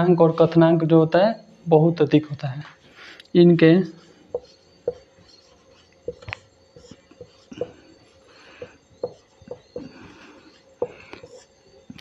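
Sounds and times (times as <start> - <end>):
marker pen strokes on whiteboard: 3.8 - 12.0
marker pen tapping on whiteboard: 4.3 - 5.1, 6.1 - 7.8, 8.6 - 9.9.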